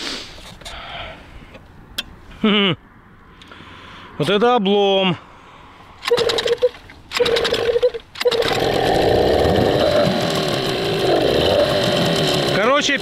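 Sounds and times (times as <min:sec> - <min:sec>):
recoil starter pull: 0:06.0 - 0:13.0
outboard motor running: 0:07.2 - 0:13.0.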